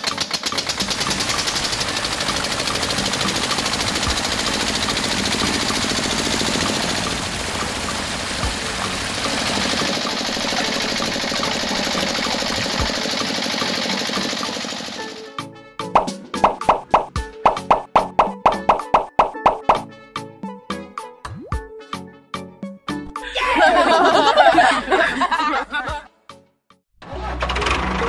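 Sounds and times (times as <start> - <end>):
small engine chugging: 0.0 - 15.3.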